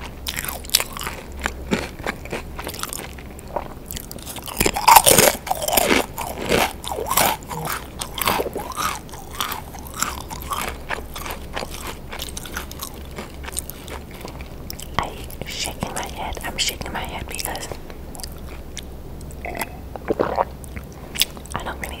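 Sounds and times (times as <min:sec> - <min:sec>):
potato crisp crunch: 0:00.0 - 0:15.9
crunchy chewing: 0:00.0 - 0:22.0.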